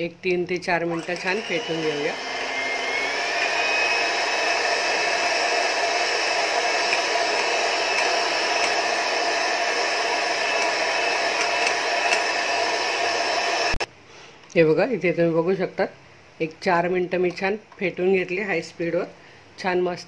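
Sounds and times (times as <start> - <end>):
electric hand mixer whining: 0.8 - 13.9.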